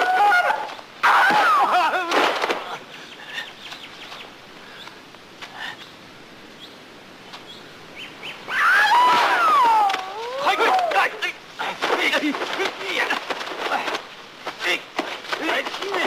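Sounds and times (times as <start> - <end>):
person shouting battle cries: 0.0 - 2.1, 8.6 - 11.2.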